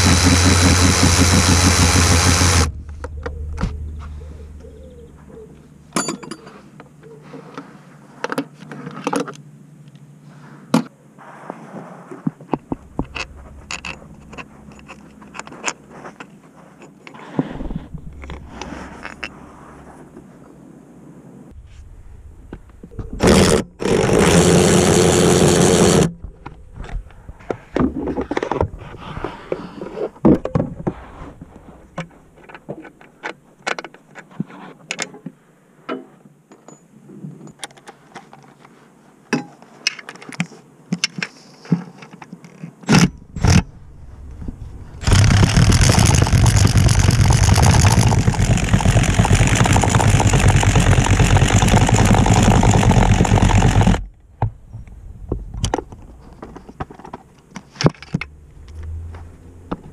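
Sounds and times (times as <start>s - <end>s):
power tool driving a socket: 0.0s - 2.7s, 23.2s - 26.1s
metal tools clinking and scraping: 5.9s - 6.8s, 12.8s - 17.2s.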